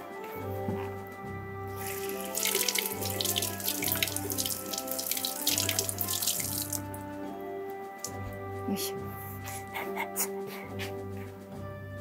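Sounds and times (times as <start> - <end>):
water splashing over hands: 1.7 - 7.1, 7.9 - 8.3
kitchen faucet running: 1.8 - 6.9.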